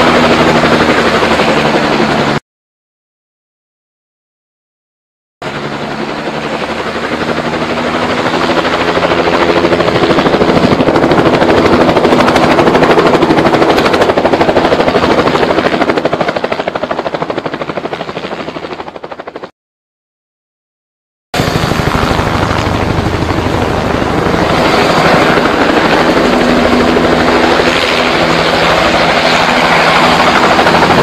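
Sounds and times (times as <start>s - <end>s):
helicopter rotor chop: 0.0s - 2.4s, 5.4s - 19.5s, 21.4s - 31.0s.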